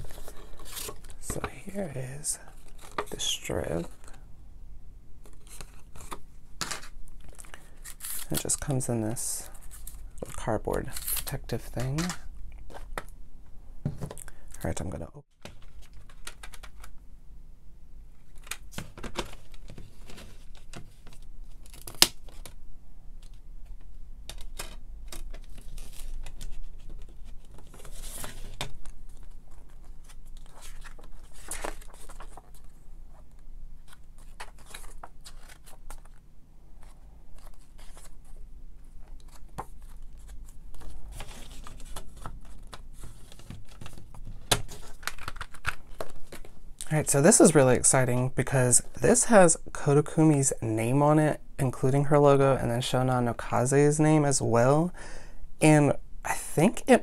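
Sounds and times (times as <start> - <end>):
paper rustling and sliding: 24.6 - 36.2, 36.8 - 46.6.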